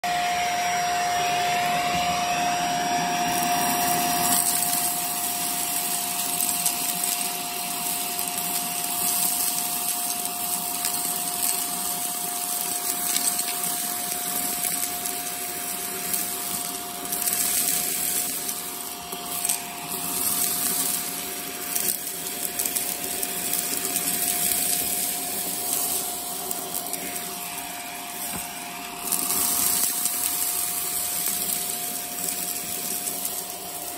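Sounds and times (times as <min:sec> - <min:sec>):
vacuum cleaner running: 0:00.0 - 0:33.9
debris rattling up nozzle: 0:03.3 - 0:33.9.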